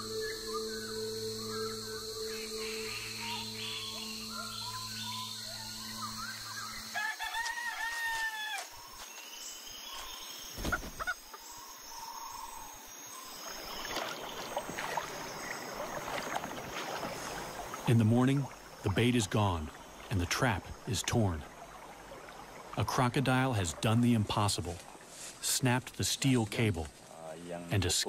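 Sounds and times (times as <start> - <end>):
rooster crowing: 6.9 - 8.7.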